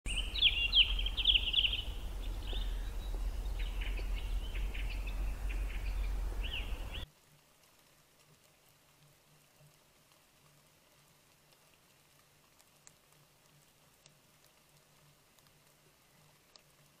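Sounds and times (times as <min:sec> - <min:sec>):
steady low rumble: 0:00.1 - 0:07.0
birds chirping and trilling: 0:00.1 - 0:07.1.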